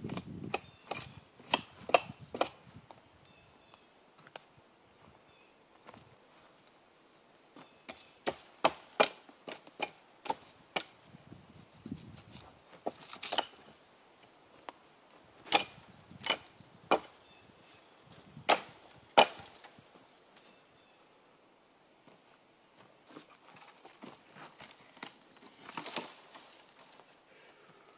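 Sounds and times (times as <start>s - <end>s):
wood being chopped by hand: 0.0s - 2.6s, 8.0s - 10.9s, 18.5s - 19.7s.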